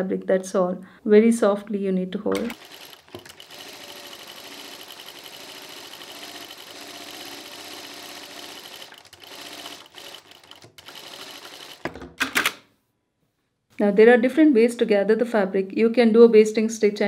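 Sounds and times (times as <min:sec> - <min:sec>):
sewing machine stitching: 0:02.3 - 0:12.6.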